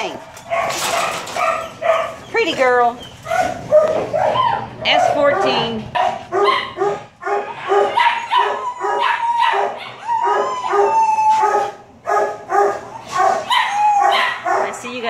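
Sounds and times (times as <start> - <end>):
dogs barking: 0.0 - 15.0
dog howling: 3.0 - 14.8.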